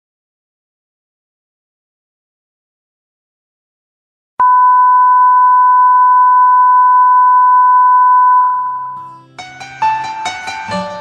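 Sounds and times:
high test tone beep: 4.4 - 9.0.

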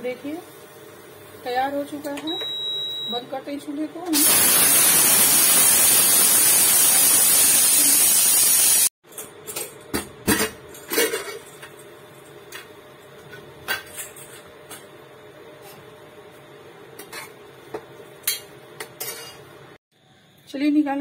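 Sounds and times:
steam hissing: 4.2 - 8.9.

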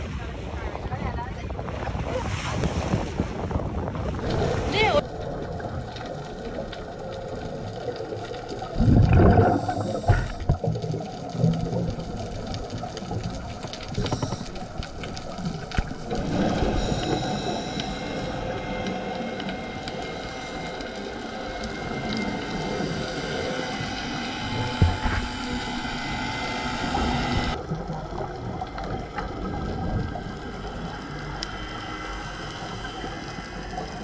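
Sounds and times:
scuba exhaust bubbling: 3.7 - 34.0
muffled underwater hiss: 6.5 - 34.0
faint steady whine: 8.4 - 10.8, 11.4 - 34.0.

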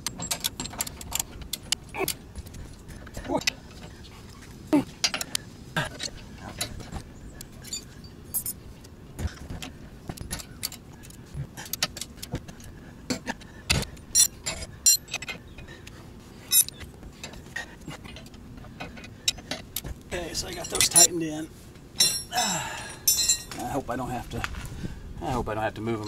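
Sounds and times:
loose tools clinking: 0.0 - 4.0, 5.0 - 8.6, 13.7 - 15.8, 16.5 - 17.4, 18.1 - 21.2, 22.0 - 23.8.

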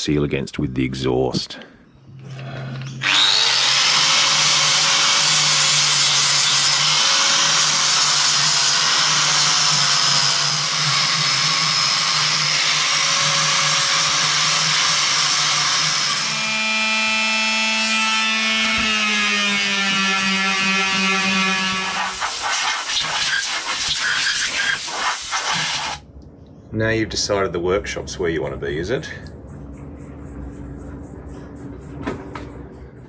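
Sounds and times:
angle grinder grinding: 2.4 - 26.0
electric sander humming: 3.0 - 22.4.

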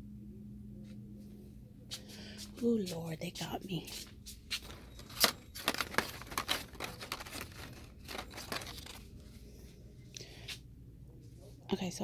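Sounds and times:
plastic packaging crinkling: 4.6 - 9.4.

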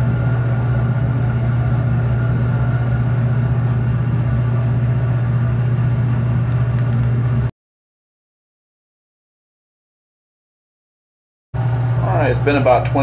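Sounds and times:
exhaust fan low hum: 0.0 - 7.5, 11.6 - 13.0.

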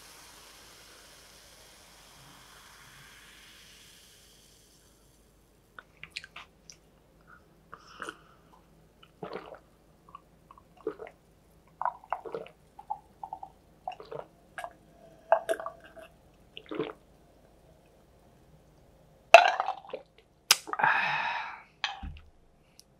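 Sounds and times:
man gulping water: 9.0 - 11.2, 11.8 - 17.0, 19.4 - 20.9.

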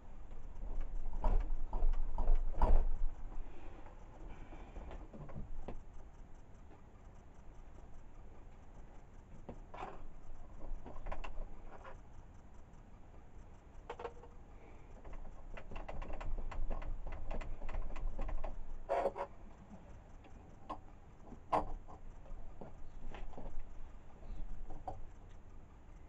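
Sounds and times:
light clicks and knocks: 0.3 - 5.9, 9.2 - 12.0, 13.8 - 19.3, 20.2 - 26.0.

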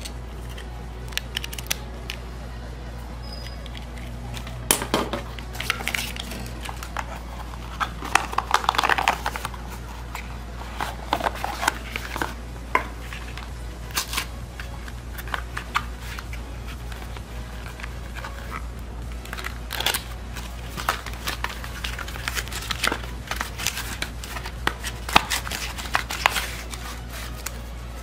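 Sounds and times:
steady low hum: 0.0 - 28.0
cardboard rustling: 19.2 - 28.0.

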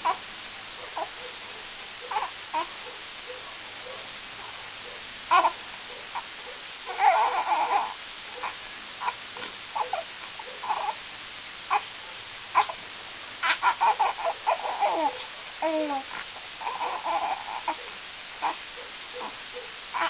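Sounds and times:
newborn baby crying: 2.0 - 2.8, 5.3 - 6.2, 6.8 - 9.2, 9.8 - 11.0, 11.7 - 11.9, 12.5 - 12.8, 13.4 - 20.0.

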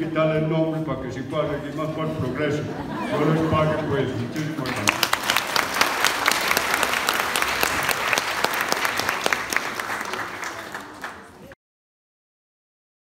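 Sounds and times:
audience applauding: 4.6 - 11.5.

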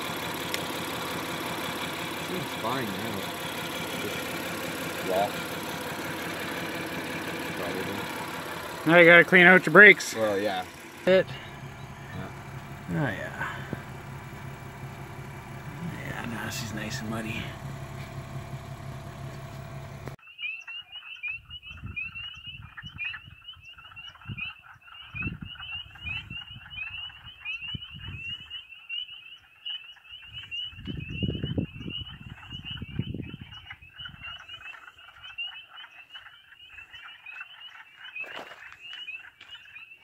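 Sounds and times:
chorus of frogs calling: 0.0 - 18.5, 20.2 - 40.0
vehicle engine idling: 0.0 - 20.2
low rumbles near microphone: 10.2 - 20.2.

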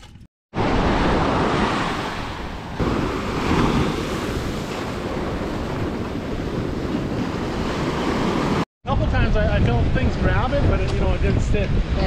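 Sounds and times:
small waves breaking on beach: 0.6 - 8.6
wind buffeting microphone: 0.6 - 12.0.

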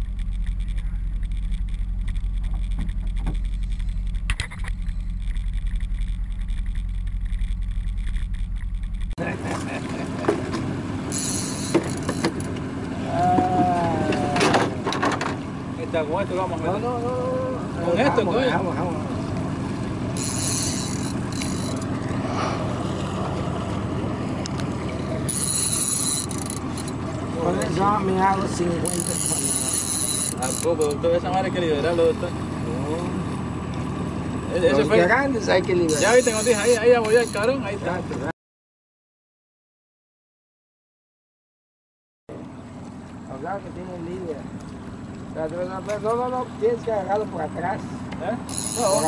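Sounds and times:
high buzz: 0.0 - 9.2
outboard motor idling: 0.0 - 38.3, 42.3 - 49.0.

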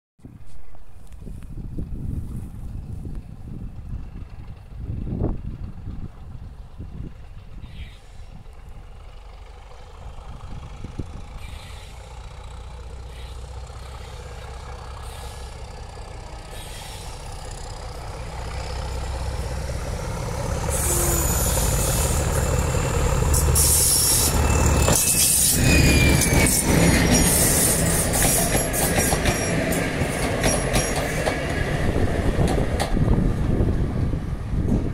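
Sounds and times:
diesel locomotive engine thrashing: 1.6 - 34.9
wheels clattering over rail joints: 8.7 - 31.6
wheel squeal: 11.4 - 12.0, 23.4 - 29.6.

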